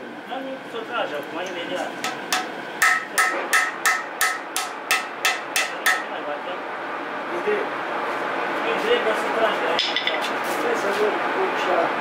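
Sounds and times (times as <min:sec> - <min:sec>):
hammer striking steel: 0:02.0 - 0:06.1, 0:09.8 - 0:10.2.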